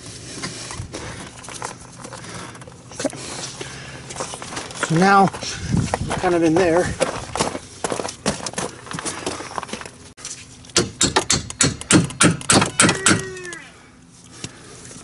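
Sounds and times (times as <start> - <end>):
hammer striking metal: 10.8 - 13.3.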